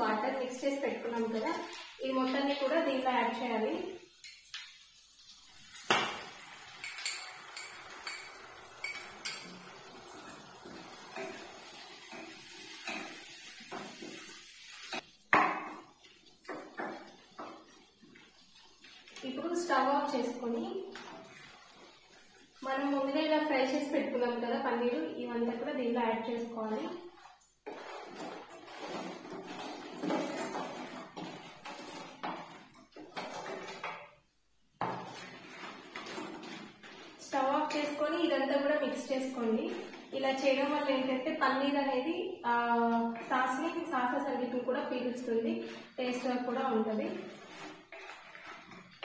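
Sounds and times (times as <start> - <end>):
wooden spatula scraping and clattering: 6.8 - 20.0, 27.1 - 34.2, 34.8 - 38.2, 45.3 - 49.0
spatula scraping in wok: 27.1 - 33.9, 45.6 - 49.0.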